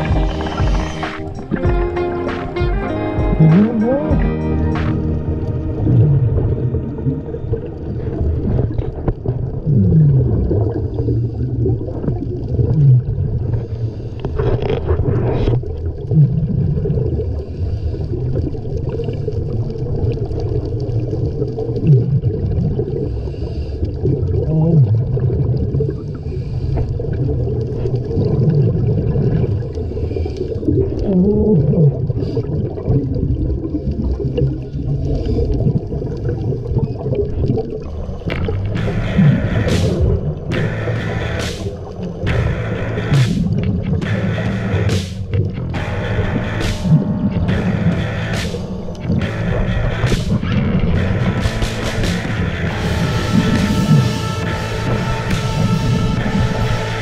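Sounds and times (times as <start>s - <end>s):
underwater low rumble: 0.0s - 57.0s
low sliding tones: 38.3s - 57.0s.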